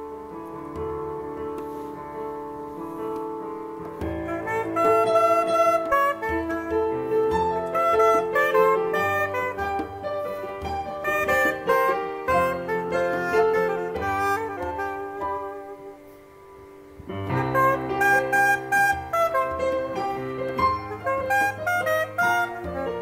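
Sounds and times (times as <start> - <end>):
keyboard chords: 0.0 - 23.0
saxophone melody: 0.0 - 23.0
hand drum: 3.1 - 16.0, 17.0 - 23.0.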